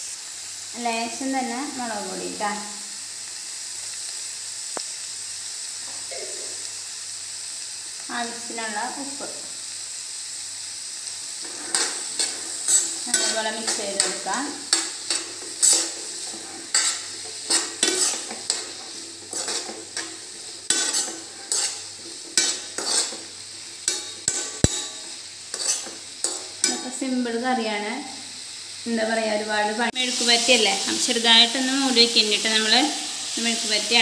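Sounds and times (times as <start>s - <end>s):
food sizzling in a pan: 0.0s - 34.0s
utensil scraping and knocking pan: 11.4s - 23.2s, 25.6s - 26.8s.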